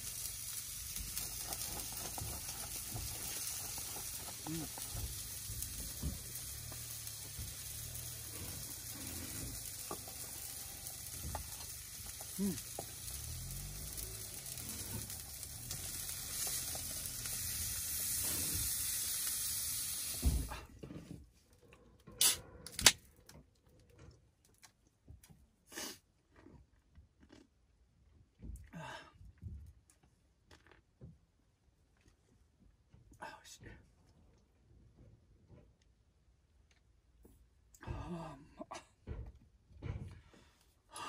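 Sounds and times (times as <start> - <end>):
sizzling hiss: 0.0 - 20.7.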